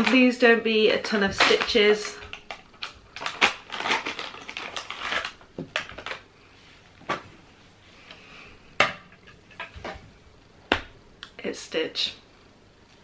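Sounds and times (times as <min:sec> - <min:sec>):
foil bag crinkling and tearing: 0:01.3 - 0:06.3.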